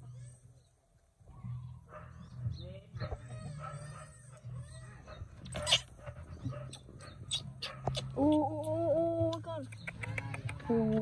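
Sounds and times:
baby monkey crying: 3.2s - 5.9s.

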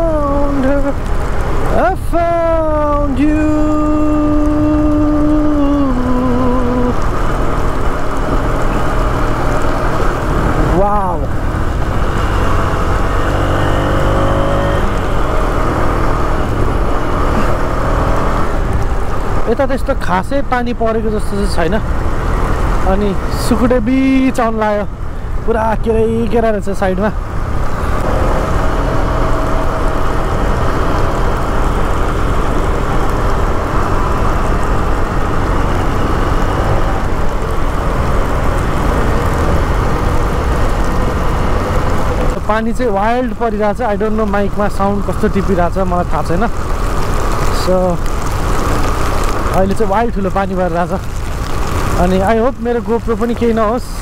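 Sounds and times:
wind rushing over microphone: 0.9s - 19.6s, 27.2s - 43.0s.

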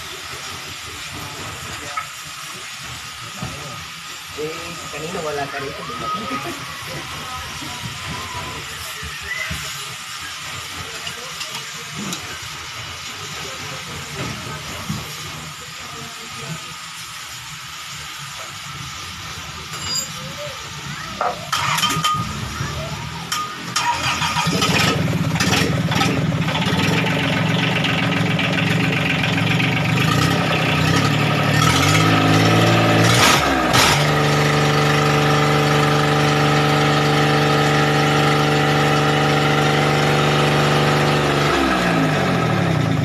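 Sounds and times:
marine diesel engine revving: 23.8s - 43.0s.

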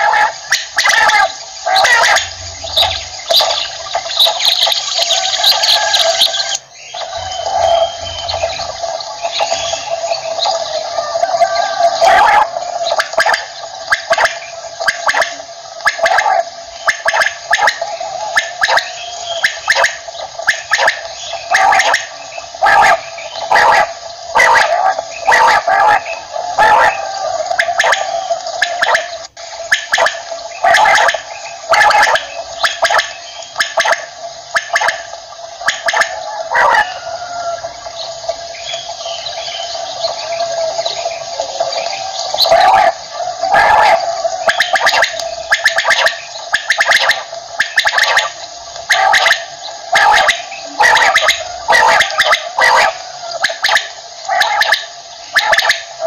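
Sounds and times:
steady hum: 0.0s - 11.0s
quail calling: 0.0s - 56.0s.

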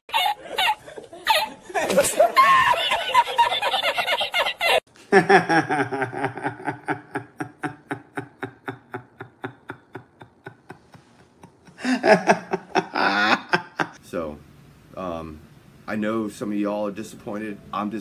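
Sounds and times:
man laughing in rhythmic pulses: 0.1s - 14.0s
man wheezing laugh: 0.1s - 14.0s.

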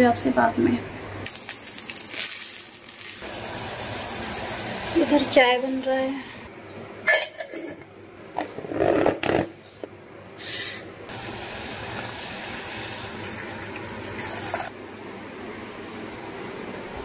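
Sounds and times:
steel lid and utensils clinking: 7.1s - 7.8s
milk pouring into boiling tea: 13.0s - 14.8s.

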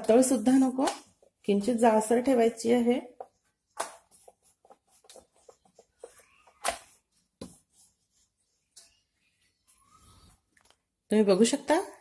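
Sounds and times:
rolling pin rubbing dough: 1.2s - 10.4s.

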